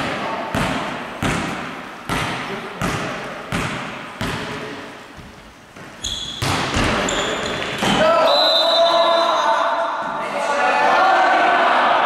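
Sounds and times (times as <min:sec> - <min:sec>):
sharp ball hits: 0:00.5 - 0:04.6, 0:06.4 - 0:08.0
ball bouncing on wooden floor: 0:00.5 - 0:08.0.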